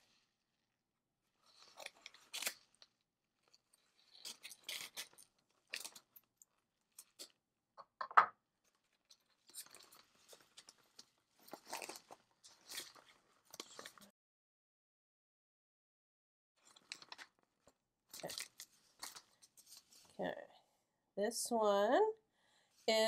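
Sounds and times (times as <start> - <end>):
paper crinkling and rustling: 1.4 - 7.4, 8.6 - 14.1, 16.6 - 20.2.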